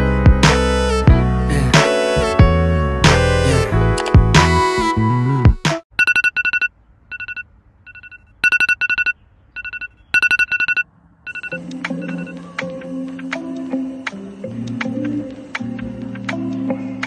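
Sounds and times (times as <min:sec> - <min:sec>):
electronic alarm beeping: 0:06.0 - 0:12.4
soft background music: 0:11.4 - 0:17.0.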